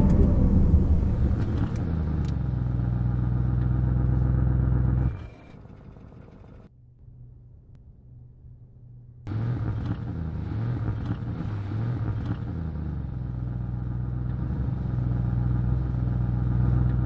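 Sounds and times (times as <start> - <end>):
car engine starting and idling: 0.0 - 6.7.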